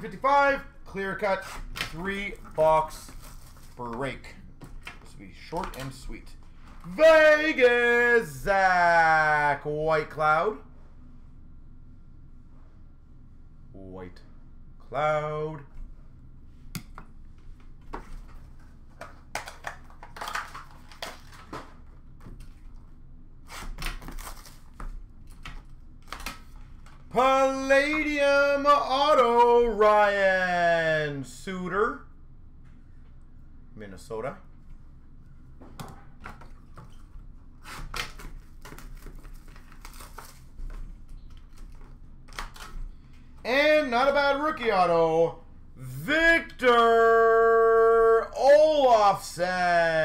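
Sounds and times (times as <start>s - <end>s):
plastic wrap crinkling: 37.9s - 42.8s.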